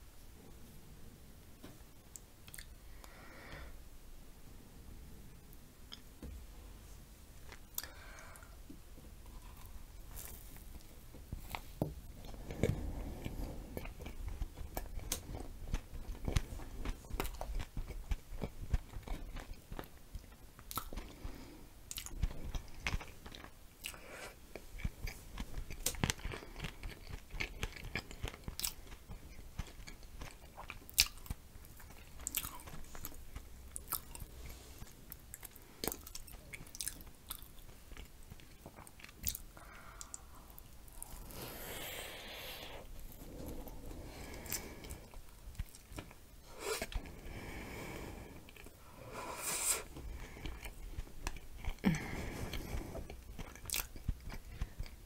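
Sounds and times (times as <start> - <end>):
person chewing: 2.2 - 2.8, 9.3 - 55.0.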